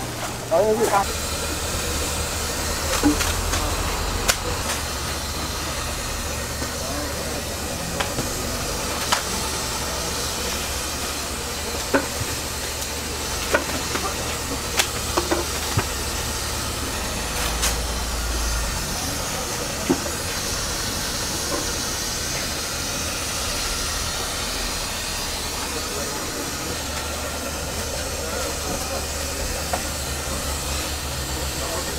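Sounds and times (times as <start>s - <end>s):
steady hissing noise: 0.0s - 31.9s.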